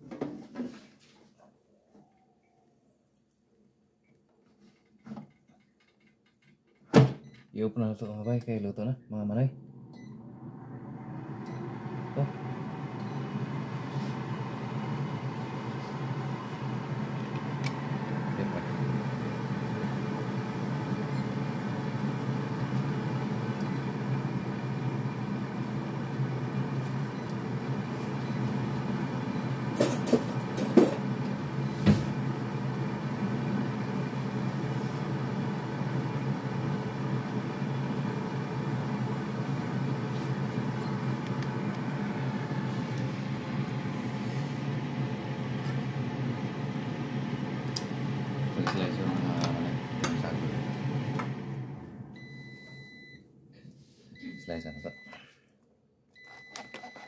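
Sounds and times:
air fryer fan humming: 7.8s - 53.2s.

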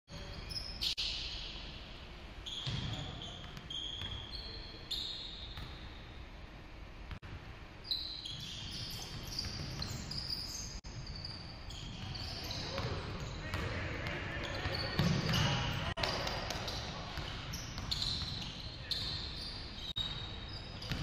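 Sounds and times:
sneakers squeaking: 0.1s - 6.3s, 7.8s - 21.0s
basketball bouncing: 12.0s - 18.4s.

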